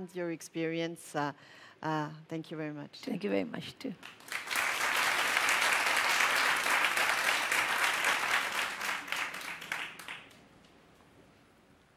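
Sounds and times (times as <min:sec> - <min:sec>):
audience applauding: 0:04.0 - 0:10.4.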